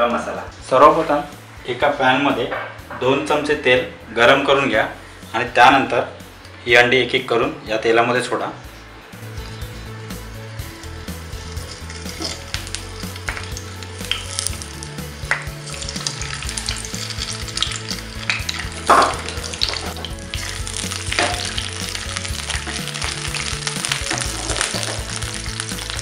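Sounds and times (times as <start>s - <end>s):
eggs sizzling in hot oil: 10.6s - 26.0s
oil crackling: 10.6s - 26.0s.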